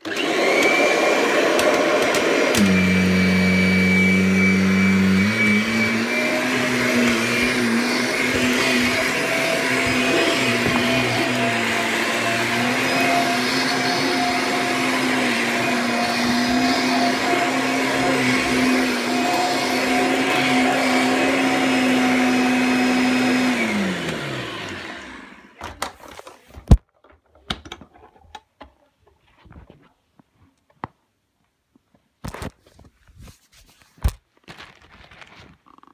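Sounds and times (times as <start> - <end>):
vacuum cleaner running on carpet: 0.0 - 25.6.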